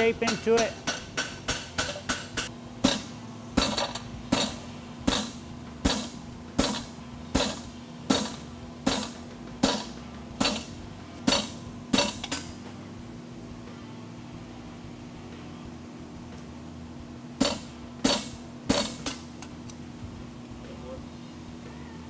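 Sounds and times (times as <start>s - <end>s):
hammer ringing on metal: 0.0s - 6.8s.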